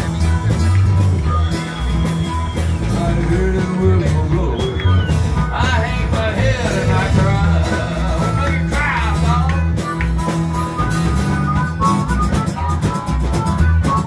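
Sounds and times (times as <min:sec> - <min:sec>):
acoustic guitar strumming: 0:00.0 - 0:14.0
harmonica playing: 0:04.4 - 0:14.0.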